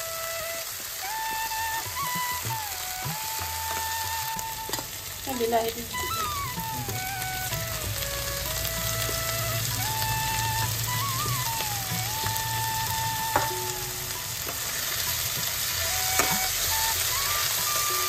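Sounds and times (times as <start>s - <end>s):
food sizzling in a pan: 0.0s - 18.0s
thin melody of held notes: 0.0s - 18.0s
utensil knocking against pan: 13.3s - 13.6s, 16.2s - 16.4s.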